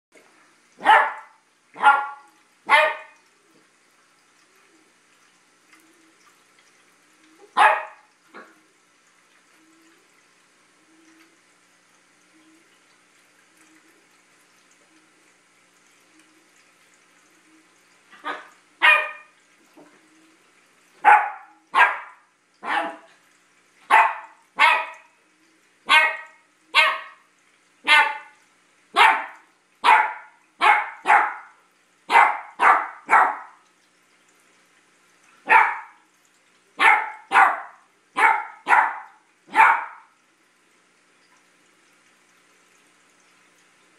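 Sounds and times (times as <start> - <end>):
puppy barking: 0.8 - 3.2, 7.5 - 8.5, 18.2 - 19.3, 21.0 - 23.1, 23.9 - 25.1, 25.9 - 27.2, 27.8 - 33.6, 35.4 - 36.0, 36.8 - 40.1.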